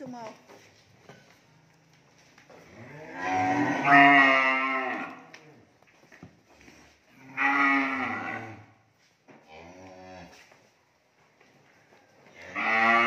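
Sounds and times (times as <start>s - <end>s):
cow mooing: 2.8s - 5.2s, 7.2s - 8.7s, 12.5s - 13.0s.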